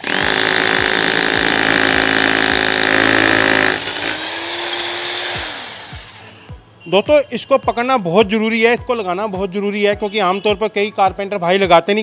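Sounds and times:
rotary hammer drilling into concrete: 0.0 - 6.4.

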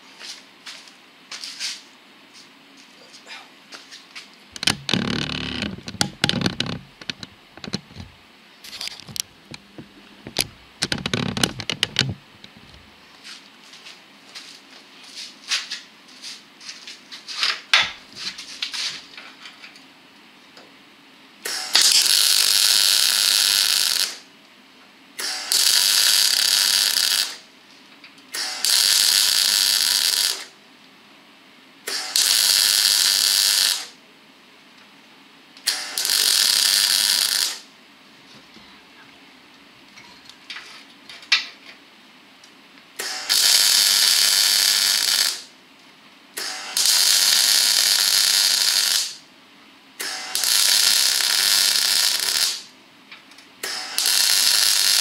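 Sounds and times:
knocks and clicks: 4.6 - 8.1, 9.0 - 12.7
welder arc crackling: 4.6 - 8.1, 8.8 - 12.7, 21.5 - 24.2, 25.2 - 27.4, 28.4 - 30.5, 31.9 - 34.0, 35.6 - 37.7, 43.0 - 45.5, 46.4 - 49.2, 50.0 - 52.7, 53.6 - 55.0.

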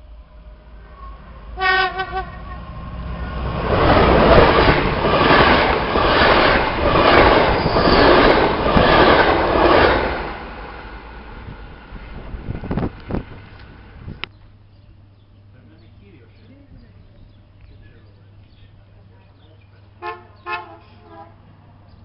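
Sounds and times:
train horn blast: 0.8 - 2.7, 20.0 - 21.5
train wheels rushing and clattering: 2.6 - 14.2.

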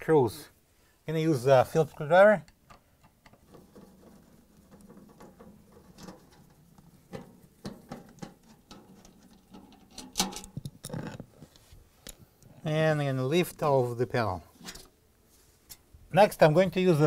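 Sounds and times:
metal panel clattering: 3.2 - 10.7.

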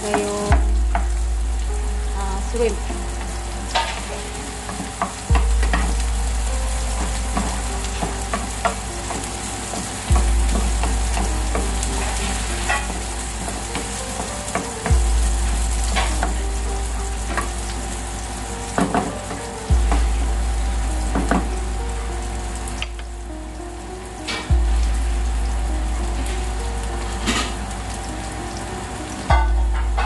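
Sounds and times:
food sizzling in a pan: 0.0 - 30.0
deep low tone: 5.3 - 7.5, 10.1 - 12.2, 19.7 - 21.8, 24.5 - 26.6.

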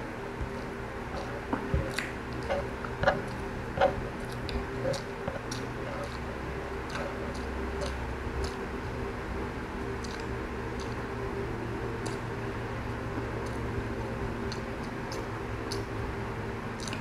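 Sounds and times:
faint steady hum: 0.0 - 17.0
person chewing food: 0.4 - 9.2, 9.9 - 11.3, 11.9 - 12.3, 13.2 - 13.7, 14.4 - 15.9, 16.8 - 17.0.

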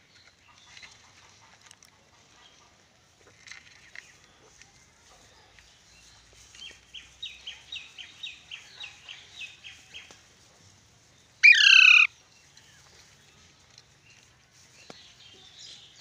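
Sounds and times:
parakeet screech: 11.4 - 12.1
parakeet soft short chirps: 11.4 - 12.1.

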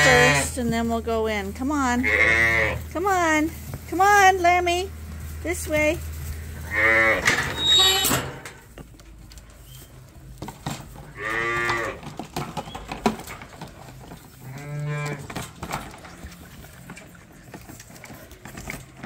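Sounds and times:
sheep bleating: 0.0 - 0.5.

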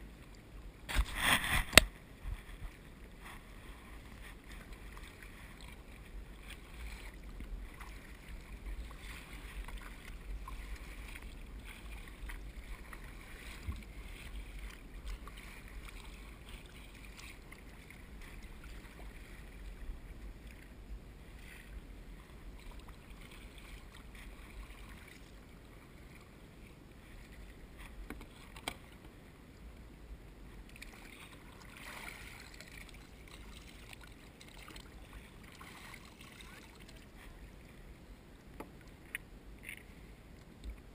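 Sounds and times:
water slapping against hull: 0.8 - 19.7, 30.7 - 37.4
paddle splashing in water: 0.8 - 26.4, 30.6 - 37.8.

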